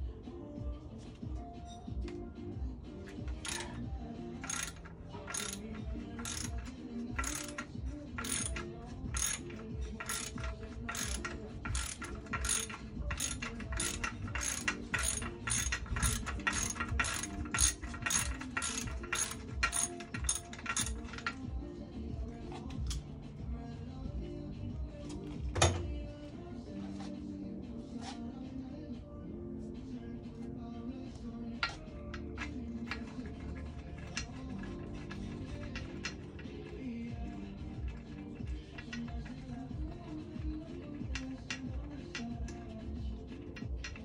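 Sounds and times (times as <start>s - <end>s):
socket ratchet clicking: 3.0s - 21.5s, 31.6s - 44.0s.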